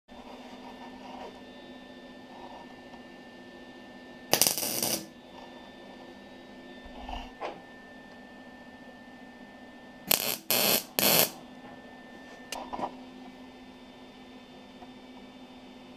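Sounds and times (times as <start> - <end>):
steady electrical hum: 0.1 - 15.9
welding arc crackling: 4.3 - 5.1, 10.1 - 11.4.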